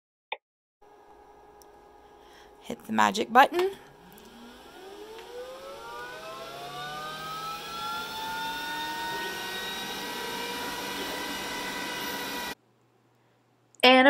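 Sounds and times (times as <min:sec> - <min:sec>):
laser cutter fans whirring: 0:03.6 - 0:12.6.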